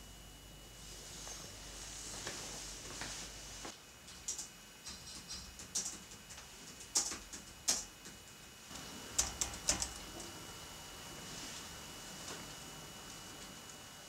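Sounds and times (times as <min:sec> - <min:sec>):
sharp clicks and ticks: 0:04.1 - 0:08.4.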